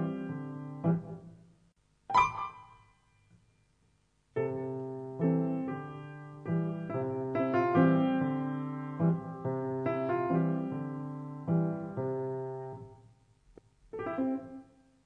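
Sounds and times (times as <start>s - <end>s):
soft piano chords: 0.0s - 1.4s, 2.1s - 3.0s, 4.4s - 13.1s, 13.9s - 15.0s
bright piano accent ringing: 2.1s - 3.2s.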